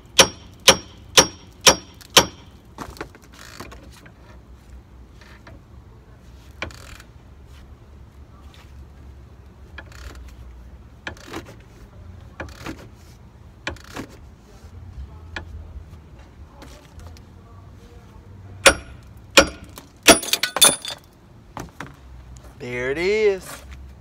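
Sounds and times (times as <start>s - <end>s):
ringing metal-on-metal clanks: 18.7s - 21.1s.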